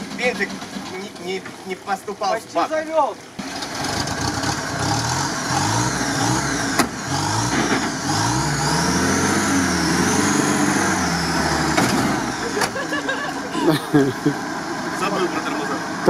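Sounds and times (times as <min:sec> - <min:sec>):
engine revving: 0:03.4 - 0:12.8.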